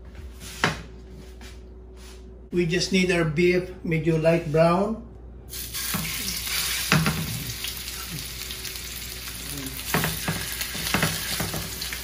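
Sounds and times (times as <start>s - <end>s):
meat sizzling in hot oil: 5.5s - 12.0s.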